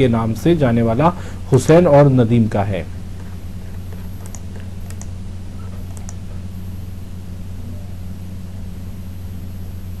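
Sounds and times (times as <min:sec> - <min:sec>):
steady low hum: 0:00.0 - 0:10.0
faint clicks: 0:04.2 - 0:05.1, 0:05.8 - 0:06.2.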